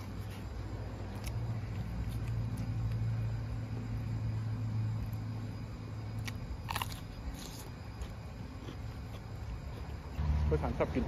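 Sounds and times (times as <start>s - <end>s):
distant motor hum: 0.0s - 11.0s
cucumber crunch bite: 6.2s - 9.9s.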